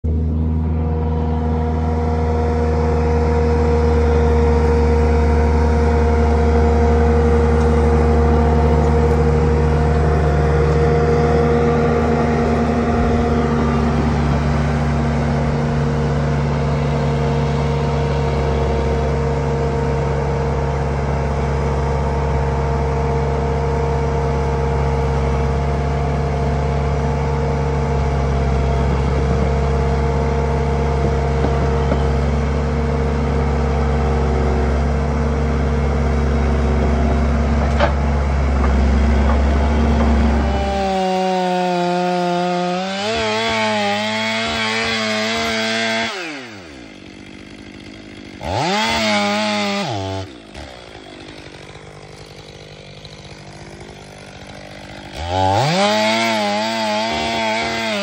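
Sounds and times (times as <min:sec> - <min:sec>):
diesel engine humming steadily: 0:00.0 - 0:58.0.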